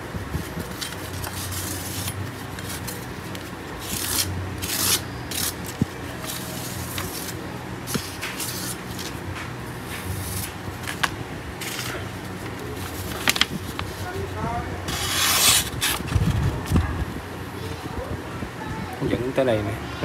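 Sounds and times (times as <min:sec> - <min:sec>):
knife scraping cardboard: 0:00.6 - 0:09.2, 0:14.9 - 0:16.2.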